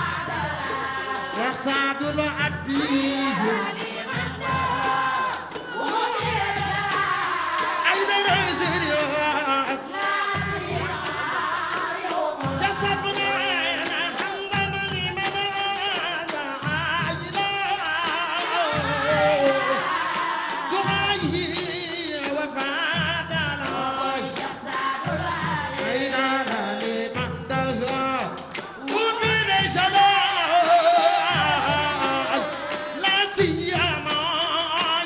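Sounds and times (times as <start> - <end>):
women's chorus singing: 0.0 - 27.7, 28.3 - 34.8
lead singer singing: 0.0 - 35.0.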